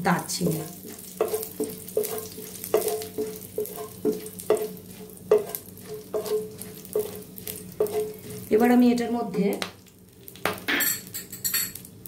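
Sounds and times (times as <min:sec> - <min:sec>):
spices sizzling in hot oil: 0:00.0 - 0:12.0
spatula knocking ringing pan: 0:00.8 - 0:07.2.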